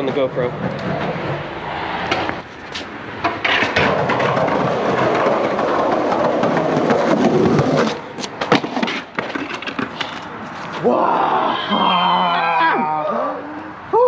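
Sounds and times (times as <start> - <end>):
skateboard wheels rolling on concrete: 0.0 - 14.0
skateboard clicks and knocks: 2.0 - 10.8.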